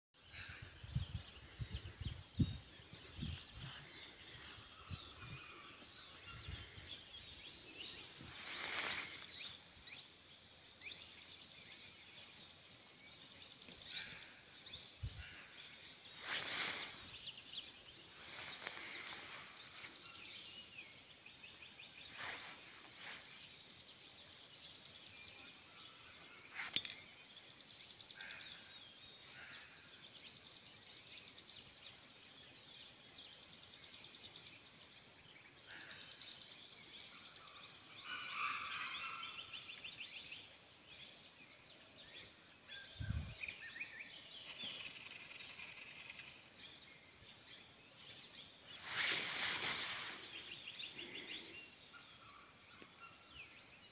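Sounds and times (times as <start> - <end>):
small bird calls: 0.2 - 53.9
brief rustles: 48.8 - 50.6.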